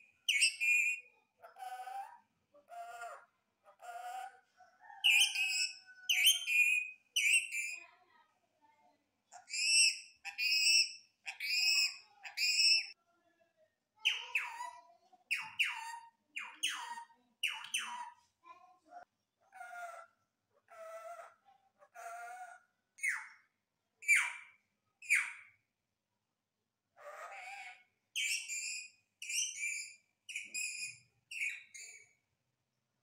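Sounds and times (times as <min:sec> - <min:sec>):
parakeet screeching: 0:09.4 - 0:12.9, 0:14.1 - 0:18.2, 0:27.0 - 0:32.0
parakeet mimicking speech: 0:14.0 - 0:18.2, 0:27.0 - 0:27.9.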